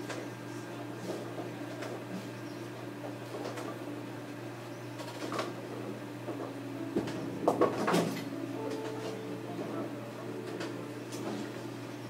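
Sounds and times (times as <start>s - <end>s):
low hum: 5.7s - 12.0s.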